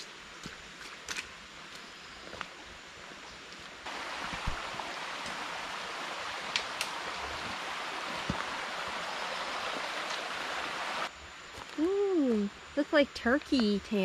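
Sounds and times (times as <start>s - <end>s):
small stream rushing: 3.8s - 11.1s.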